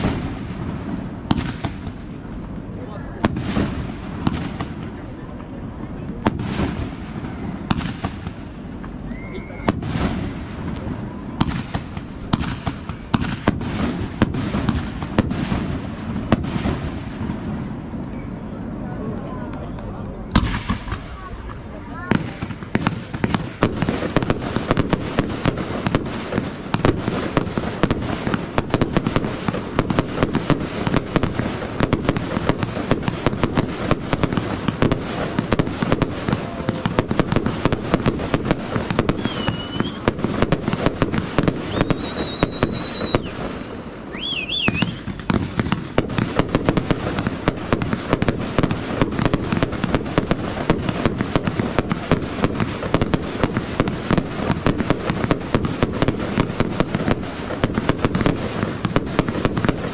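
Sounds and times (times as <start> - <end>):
fireworks crackling and banging: 0.0 - 59.9
high firework whistles: 6.5 - 17.2, 37.7 - 47.0.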